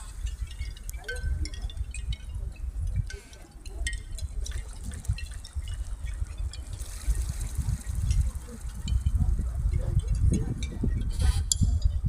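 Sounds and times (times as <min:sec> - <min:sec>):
water trickling and dripping: 0:00.0 - 0:12.0.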